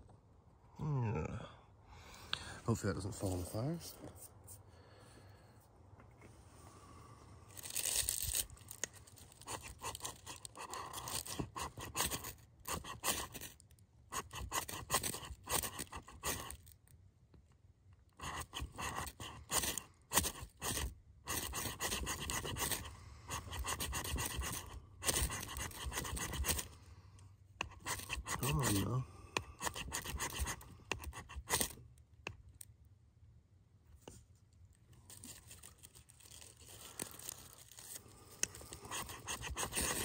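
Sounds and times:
knife scraping ferro rod: 0:09.4 - 0:13.5, 0:14.1 - 0:16.6, 0:18.2 - 0:26.7, 0:27.6 - 0:32.4, 0:38.4 - 0:40.0.

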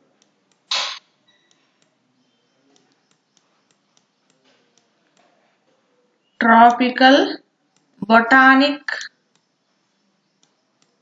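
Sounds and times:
short sharp hiss: 0:00.7 - 0:01.0.

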